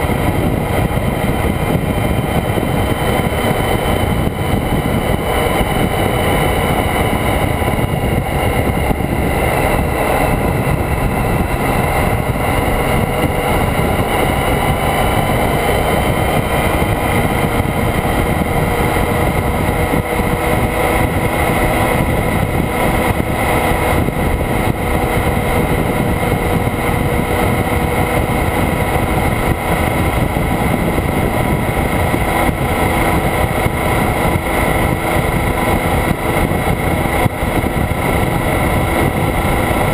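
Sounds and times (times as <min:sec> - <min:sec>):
motorcycle engine running: 0:00.0 - 0:39.9
wind and road rush: 0:00.0 - 0:39.9.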